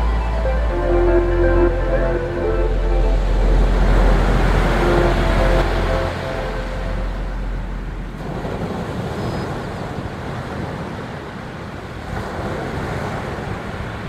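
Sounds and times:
waves breaking on beach: 3.5s - 14.0s.

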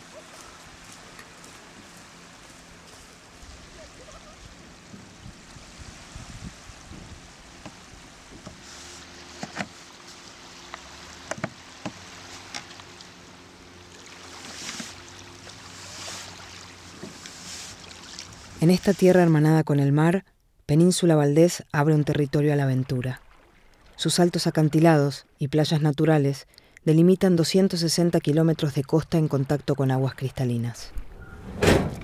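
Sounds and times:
paddle splashes: 0.0s - 19.0s, 22.7s - 24.3s
sea water sloshing: 0.0s - 19.1s, 22.4s - 24.3s
kayak knocking: 6.8s - 13.2s, 13.9s - 18.5s.

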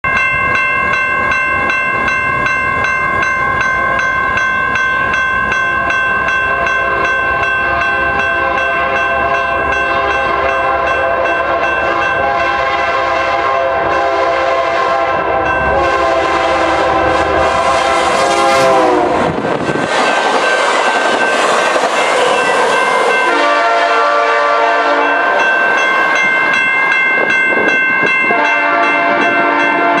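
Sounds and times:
steady ringing tones: 0.0s - 14.1s, 24.8s - 30.0s
train wheels rushing: 0.2s - 30.0s
locomotive air horn: 8.2s - 19.4s, 23.2s - 25.5s, 28.3s - 30.0s.

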